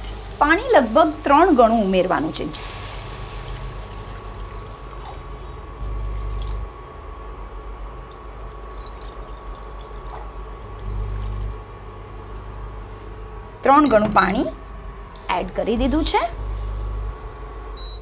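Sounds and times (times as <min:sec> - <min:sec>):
water pouring into a pan: 0:02.5 - 0:06.8, 0:08.1 - 0:11.5.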